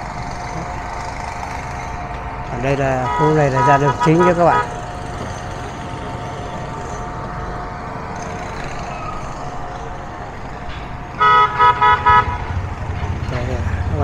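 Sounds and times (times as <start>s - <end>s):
street noise: 0.0s - 14.0s
vehicle horn toots: 2.8s - 4.8s, 11.2s - 12.6s.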